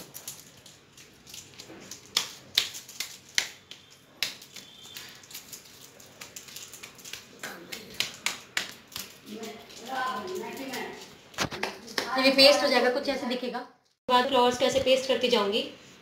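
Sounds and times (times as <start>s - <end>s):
paper crackling: 0.0s - 11.9s
hands tapping paper on a wall: 6.1s - 12.1s.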